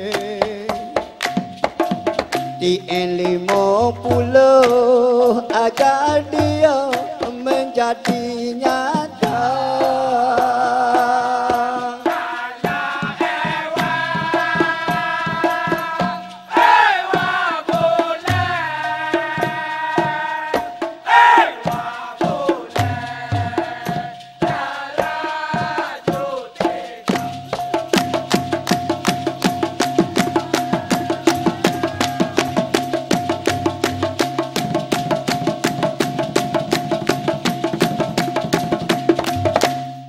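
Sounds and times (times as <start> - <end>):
percussion: 0.0 - 40.0
rhythmic hand-clapping: 0.0 - 40.0
male chorus singing in unison: 3.0 - 27.4, 29.9 - 32.9.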